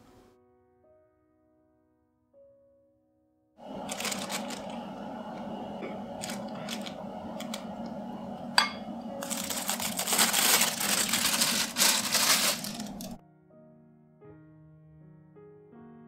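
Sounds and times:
plastic bag crinkling: 3.6 - 8.0, 9.1 - 13.2
spoon knocking on glass: 8.6 - 8.9.

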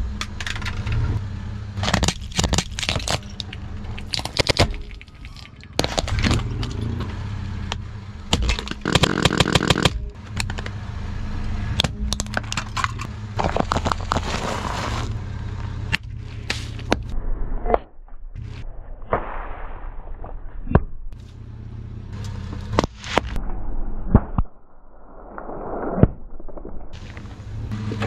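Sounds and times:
low engine hum: 0.0 - 18.9, 20.0 - 24.8, 26.1 - 28.0
plastic housing cracking: 1.8 - 6.8.

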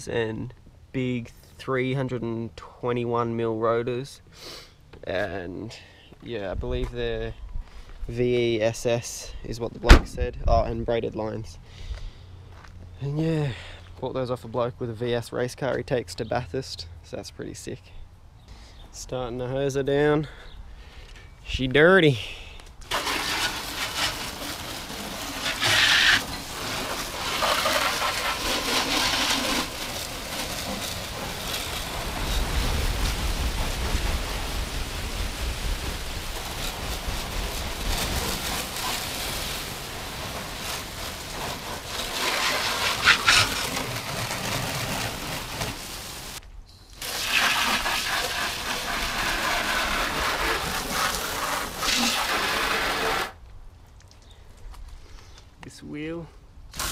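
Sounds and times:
hose spray hissing and spattering: 22.8 - 53.4.

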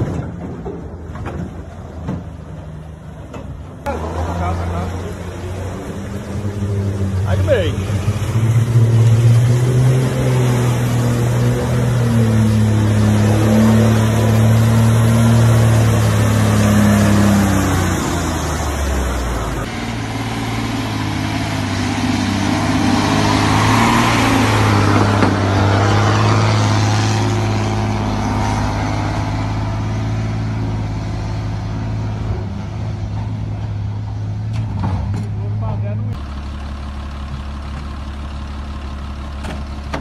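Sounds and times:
diesel truck engines running: 0.0 - 40.0.

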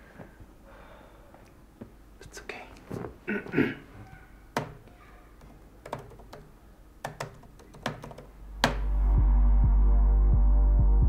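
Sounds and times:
laptop keys clicking: 4.6 - 8.9
music with low pulse: 8.8 - 11.0.

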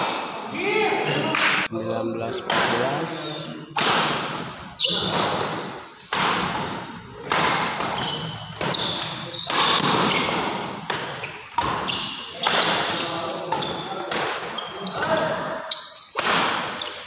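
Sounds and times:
sneaker squeaks on wooden court: 3.3 - 17.0
rackets hitting shuttlecock: 3.7 - 17.0.

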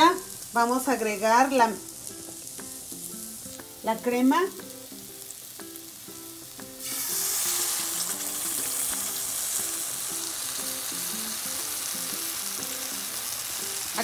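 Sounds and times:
garlic sizzling in oil: 0.0 - 14.0
cream poured into hot pan: 6.8 - 9.6.

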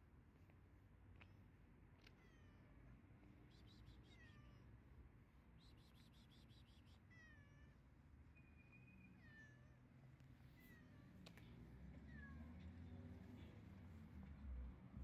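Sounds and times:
cat meowing faintly: 2.0 - 3.0, 4.0 - 4.8, 11.9 - 12.8.

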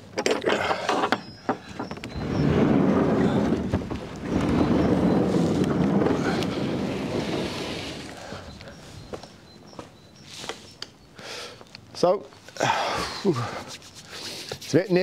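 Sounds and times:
wooden door scraping open: 0.2 - 9.3.

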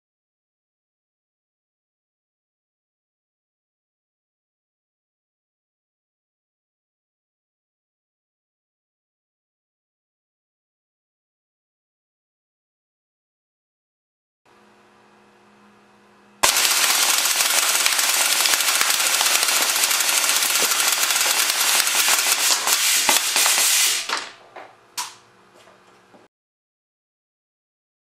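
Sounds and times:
air gun full-auto burst: 16.4 - 24.1
pellets striking a metal can: 16.4 - 24.3.

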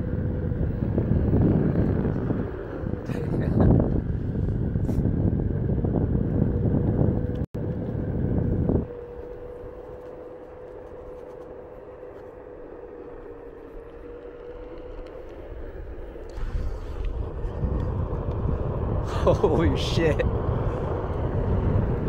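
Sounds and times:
electric motor whine: 0.0 - 22.0
wind rumbling on microphone: 0.0 - 22.0
tyre and air rush: 15.6 - 22.0.

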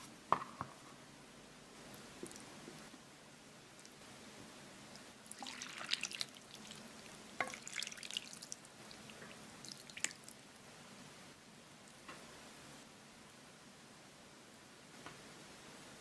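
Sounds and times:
liquid splashing and dripping: 5.3 - 10.4.

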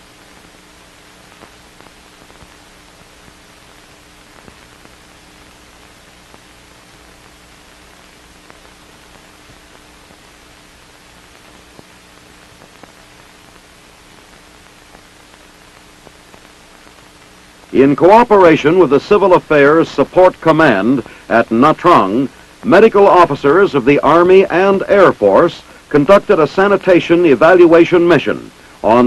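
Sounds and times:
faint hum: 0.0 - 29.0
film soundtrack hiss: 0.0 - 29.0
small clicks and pops: 0.4 - 17.7.

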